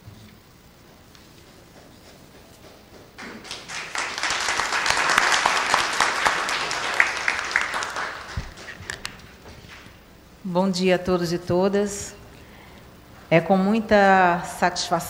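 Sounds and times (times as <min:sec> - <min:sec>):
audience applauding: 0:03.2 - 0:09.9.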